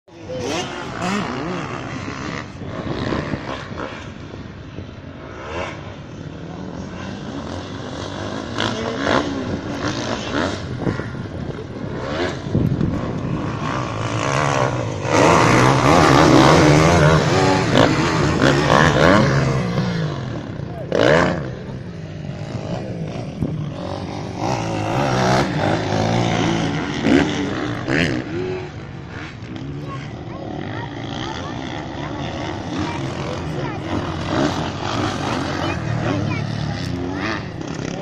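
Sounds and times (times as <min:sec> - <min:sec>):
motocross bike engines revving: 0:00.0 - 0:38.0.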